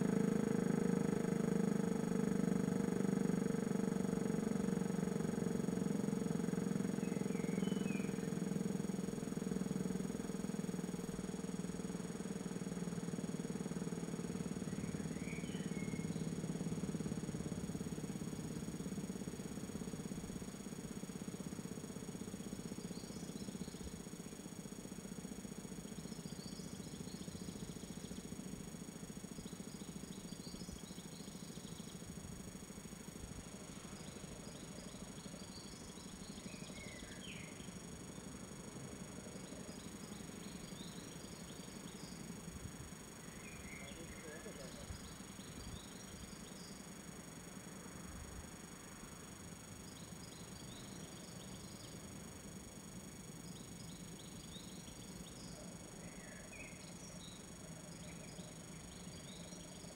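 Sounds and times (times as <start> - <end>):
faint high chirping: 5.3 - 24.4, 25.2 - 47.9, 49.5 - 59.9
bird chirps: 7.0 - 8.4, 14.5 - 16.7, 43.2 - 46.8, 53.4 - 59.9.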